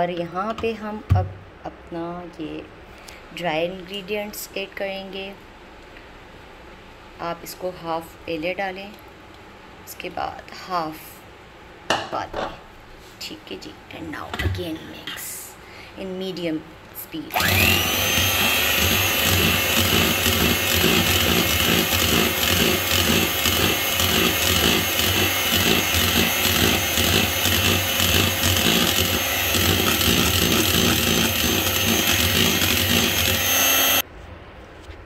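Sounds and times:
electric hand mixer running: 17.3s - 34.0s.

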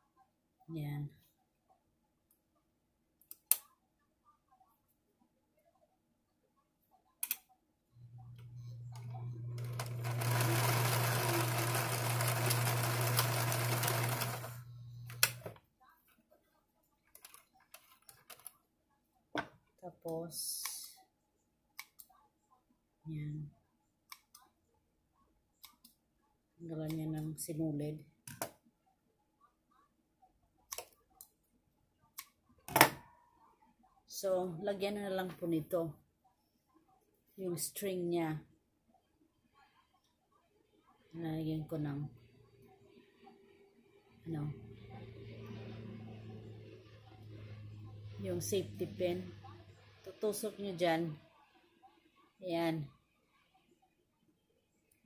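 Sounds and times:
sewing machine motor humming: 8.3s - 15.5s.

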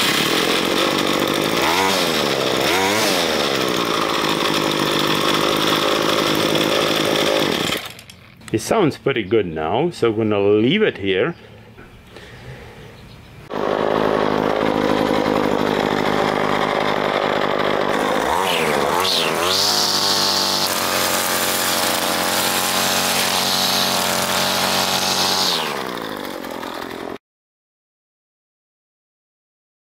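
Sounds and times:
trimmer line cutting grass: 0.0s - 8.3s, 13.5s - 27.2s
string trimmer engine running: 0.0s - 8.5s, 13.5s - 27.2s.

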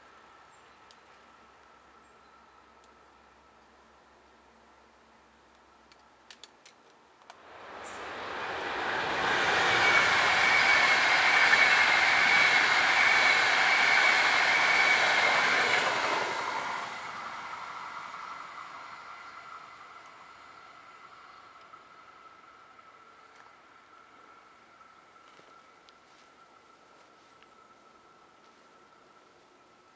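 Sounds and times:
passenger train passing: 7.3s - 29.9s
high whine: 7.4s - 29.8s.

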